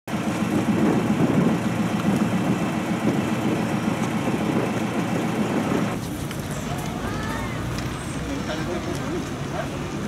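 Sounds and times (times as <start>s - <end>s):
engine running: 0.1s - 10.0s.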